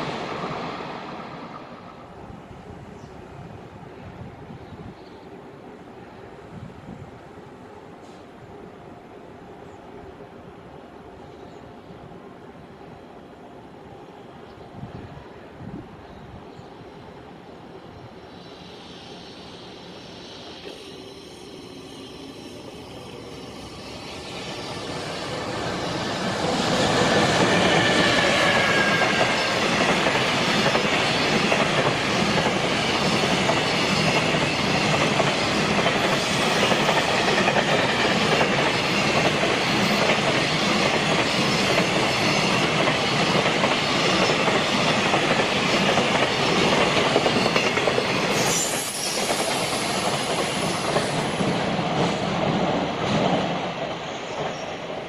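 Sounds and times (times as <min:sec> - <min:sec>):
train wheels roaring on rail: 0:00.0 - 0:55.0.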